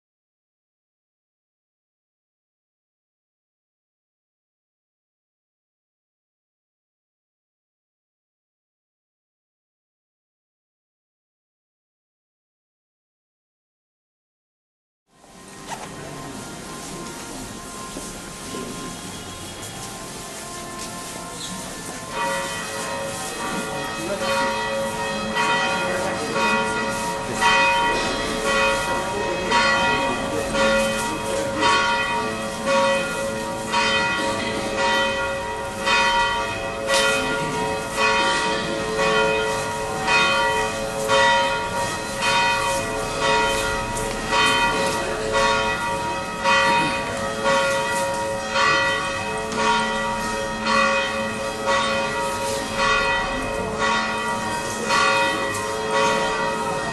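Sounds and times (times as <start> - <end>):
church bells ringing: 15.2 - 56.9.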